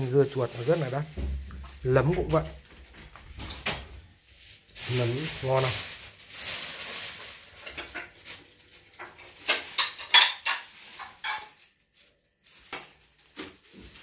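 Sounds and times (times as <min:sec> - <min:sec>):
dishes and utensils clattering: 0:07.6 - 0:08.3, 0:08.9 - 0:11.7.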